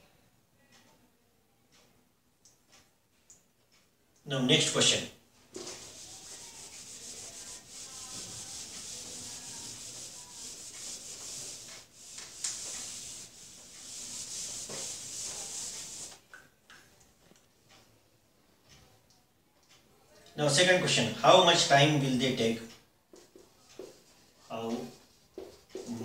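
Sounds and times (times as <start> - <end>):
eraser scrubbing whiteboard: 5.6 - 16.2, 23.4 - 26.0.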